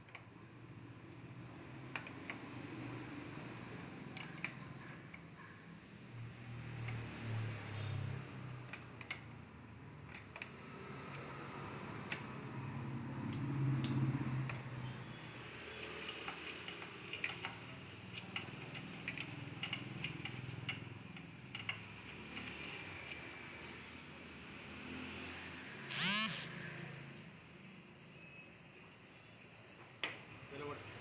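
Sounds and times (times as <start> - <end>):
hand tools clicking on metal: 15.7 - 20.8.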